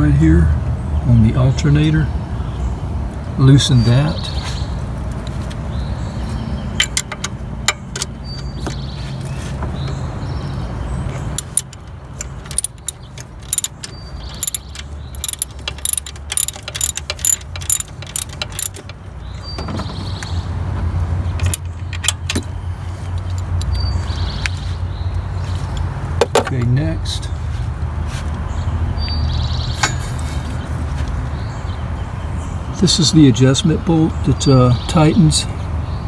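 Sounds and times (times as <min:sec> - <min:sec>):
socket ratchet clicking: 0:11.4 - 0:19.0, 0:21.4 - 0:22.2.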